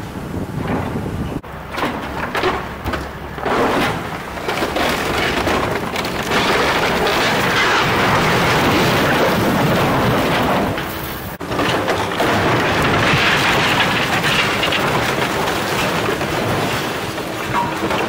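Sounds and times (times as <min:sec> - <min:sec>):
excavator rumble: 0:00.1 - 0:18.0
debris cracking and crashing: 0:01.7 - 0:18.0.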